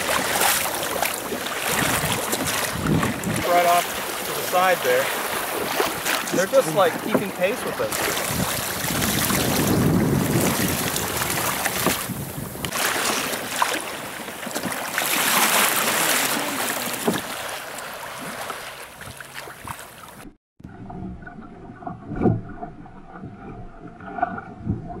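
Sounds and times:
waves splashing against hull: 0.0 - 25.0
wind buffeting microphone: 1.2 - 12.8.

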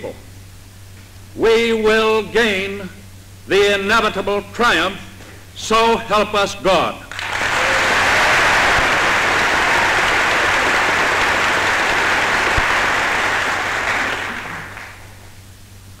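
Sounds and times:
crowd applauding: 7.1 - 15.3.

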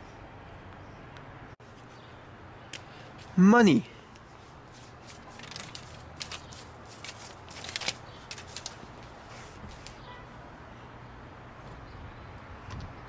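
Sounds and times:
paper banknotes rustling: 4.4 - 10.0.

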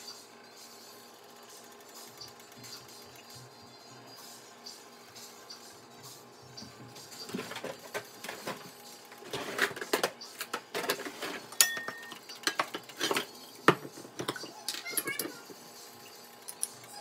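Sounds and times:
metal cookware clinking: 10.8 - 13.3.

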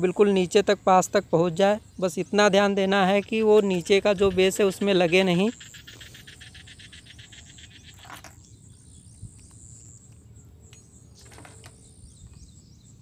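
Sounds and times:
insects chirping: 0.0 - 13.0.

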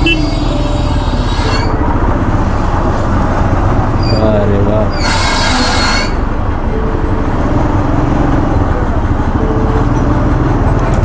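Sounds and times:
motorcycle engine rumbling: 0.0 - 5.0.

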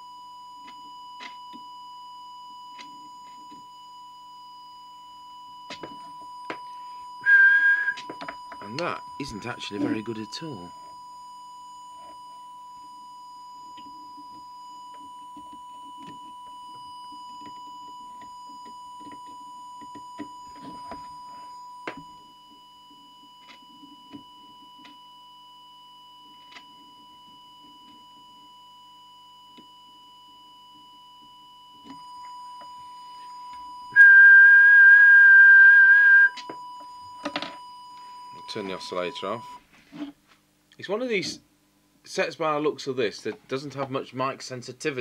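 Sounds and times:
loud high whistle-like tone: 0.0 - 39.6
steady test tone: 5.7 - 22.9, 30.4 - 39.6.

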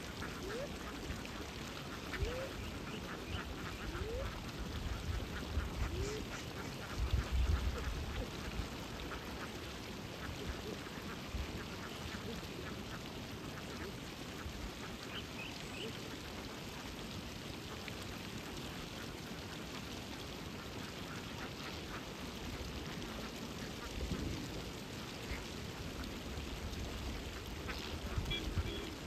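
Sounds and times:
waterbirds calling: 0.0 - 19.0, 20.5 - 29.0.

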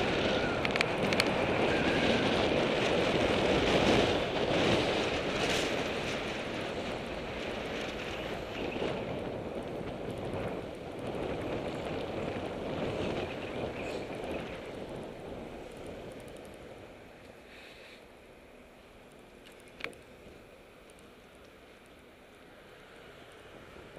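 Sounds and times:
bicycle rolling over cobbles: 0.0 - 16.8
wind on microphone: 0.0 - 17.0
tyre and street noise: 0.0 - 23.9.

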